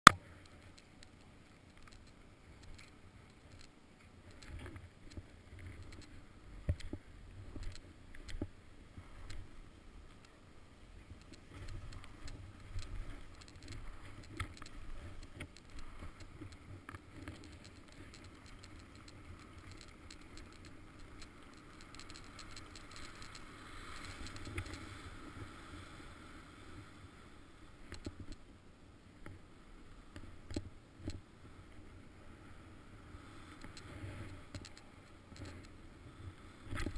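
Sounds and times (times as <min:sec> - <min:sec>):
small knocks and clicks: 0:00.1 - 0:08.5, 0:11.1 - 0:24.8, 0:27.9 - 0:28.4, 0:33.6 - 0:35.7.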